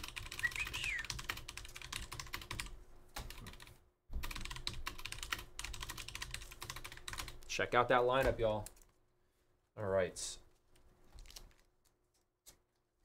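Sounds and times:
typing on keyboard: 0.0 - 7.5.

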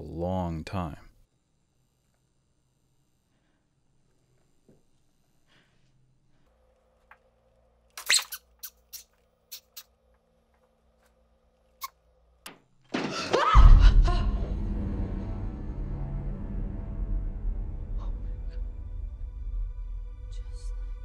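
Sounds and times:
faint hum: 0.0 - 8.0
deep low rumble: 13.7 - 21.0
scary music sting: 13.7 - 21.0.

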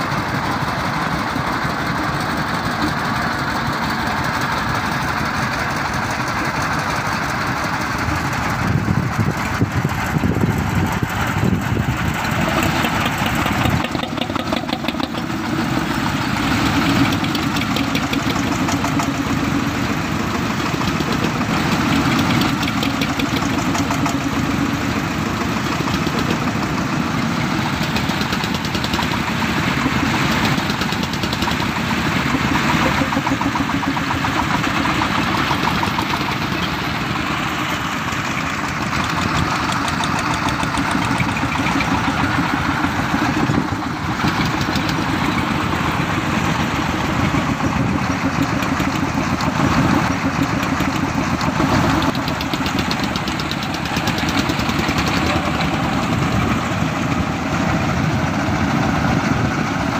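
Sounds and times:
vehicle engines running: 0.0 - 59.9.

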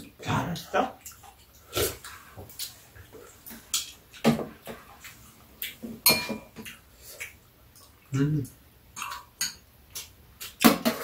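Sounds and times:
utensils clinking against bowls: 6.0 - 6.6.

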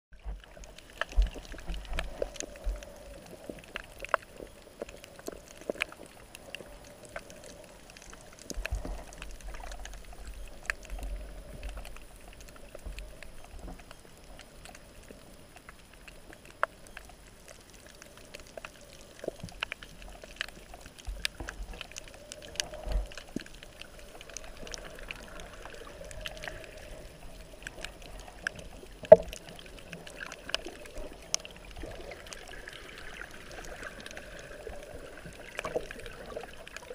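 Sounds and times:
muffled underwater noise: 0.2 - 36.9
sharp clicks and crackles: 0.2 - 36.9.

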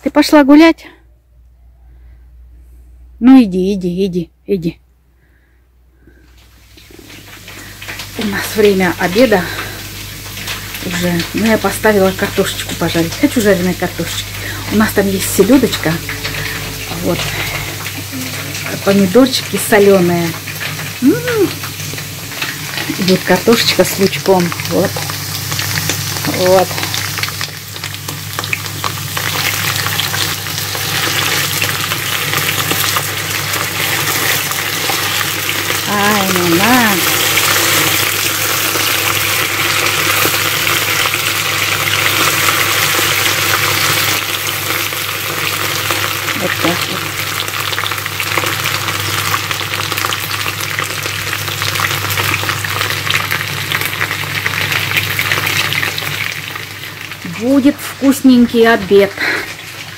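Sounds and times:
low hum: 0.9 - 19.7
potato sticks sizzling in oil: 6.0 - 59.9.

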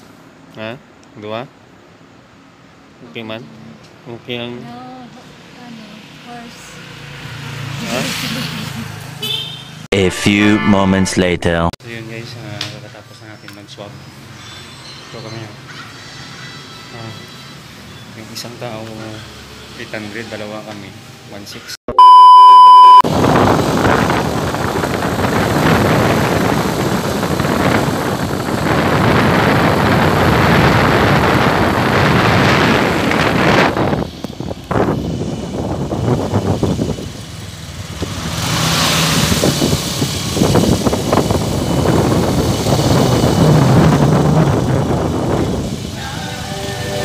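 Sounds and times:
vehicle engine and road noise: 0.0 - 9.9, 11.8 - 47.0
wind rushing over microphone: 23.1 - 46.0.

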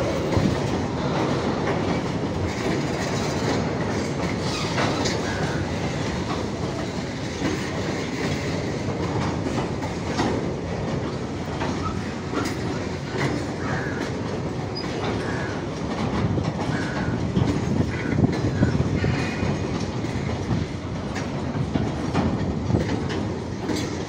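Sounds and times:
train rumble: 0.0 - 24.0
train wheels clattering over joints: 0.0 - 24.0.

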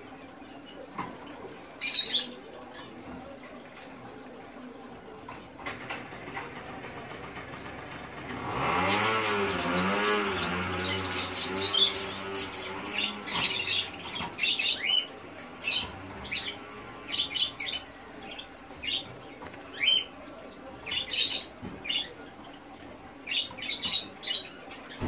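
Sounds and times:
finches calling: 9.2 - 22.6.

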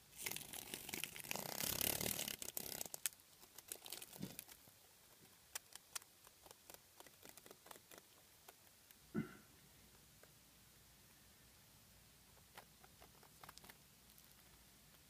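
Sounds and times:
insect crackling and rustling: 0.1 - 9.0, 12.9 - 14.6.

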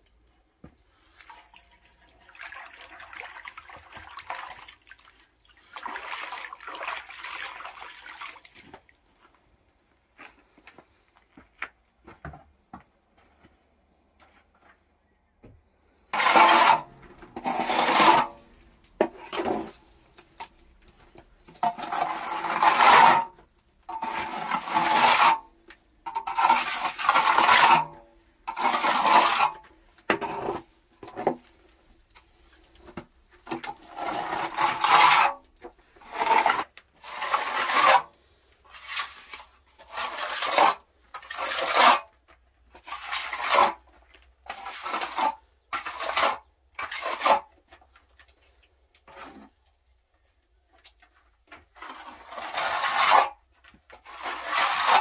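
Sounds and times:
hand tool scraping plaster wall: 16.0 - 49.7, 51.0 - 55.0.

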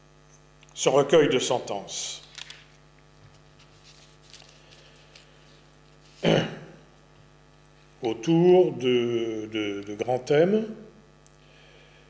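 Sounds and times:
faint mains hum: 0.0 - 12.0
man clearing his throat: 6.2 - 6.9.

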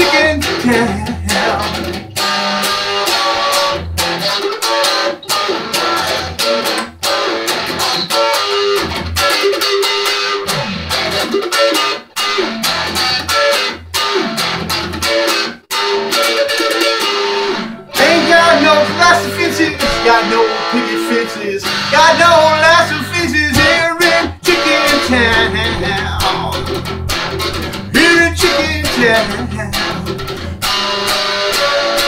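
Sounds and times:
electric guitar solo: 0.0 - 32.0
low bass notes: 21.6 - 30.8.

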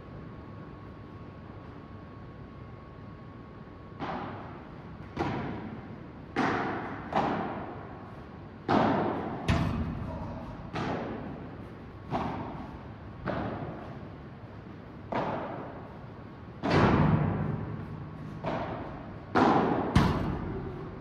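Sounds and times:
padel ball pops with echo: 18.4 - 20.5.

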